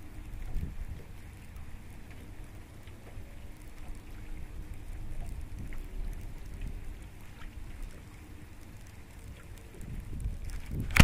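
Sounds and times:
wind buffeting microphone: 0.0 - 1.7, 4.1 - 11.0
faint ticks: 0.0 - 11.0.

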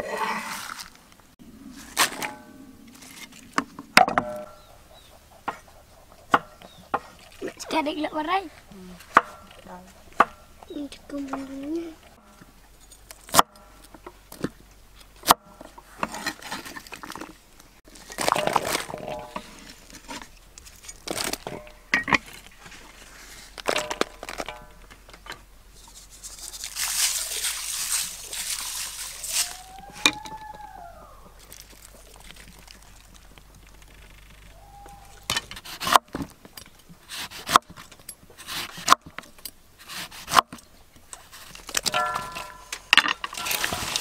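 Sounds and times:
rising and falling call: 29.0 - 31.5, 34.4 - 35.3.

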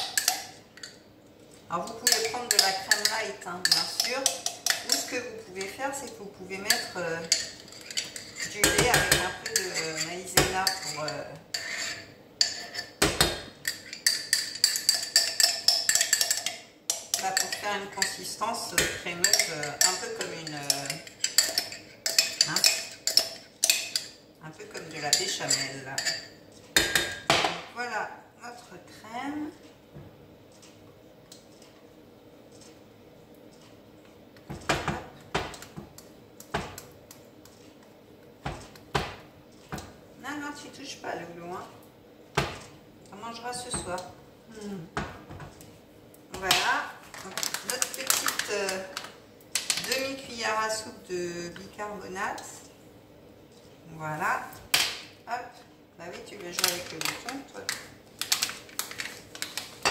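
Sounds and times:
metal spoon clinking on pot: 0.0 - 1.0, 1.8 - 27.3.

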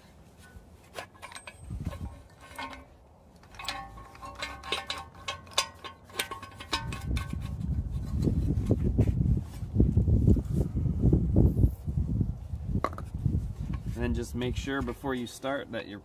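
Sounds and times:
steel parts clinking: 0.4 - 7.7.

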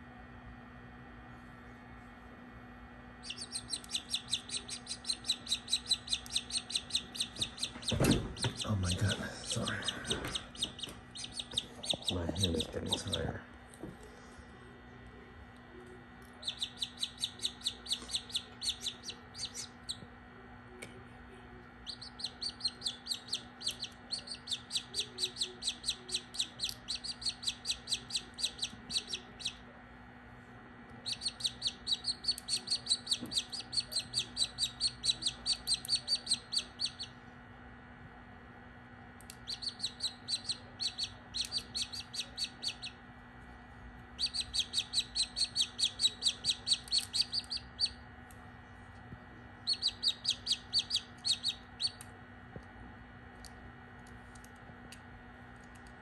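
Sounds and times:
chick peeping: 3.2 - 13.3, 16.4 - 20.1, 21.8 - 29.6, 31.0 - 37.1, 39.3 - 43.0, 44.2 - 48.0, 49.6 - 52.0.

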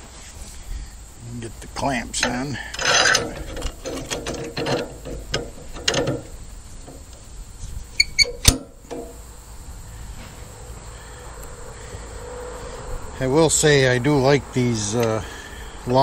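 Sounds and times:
metal clicks and scraping: 2.0 - 9.2
ringing metal clicks: 2.1 - 7.2, 8.0 - 9.2
loud metal clank: 2.2 - 7.1, 8.2 - 9.3.

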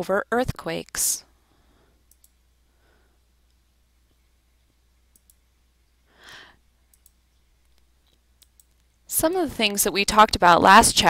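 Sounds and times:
soft breath: 1.4 - 2.0, 2.6 - 3.3, 6.1 - 6.7
computer mouse clicks: 2.1 - 2.4, 5.1 - 5.4, 6.9 - 9.0.

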